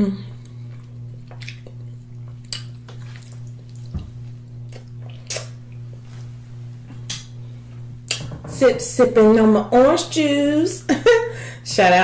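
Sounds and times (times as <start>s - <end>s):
electric fan humming: 0.0s - 12.0s
wet mouth smacks and sucks: 4.7s - 5.6s.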